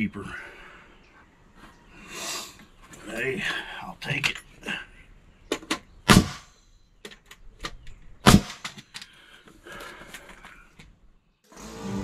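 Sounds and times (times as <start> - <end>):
tool and lumber clicks and knocks: 5.5 - 5.9
nail gun firing into wood: 6.0 - 6.5, 8.2 - 8.8.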